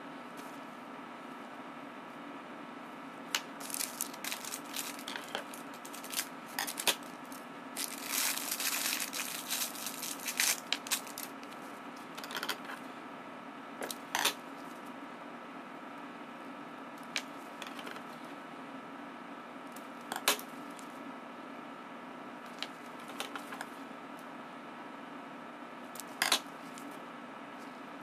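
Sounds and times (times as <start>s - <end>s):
steady low hum: 0.0s - 28.0s
plastic wrapper crinkling and tearing: 3.4s - 11.5s.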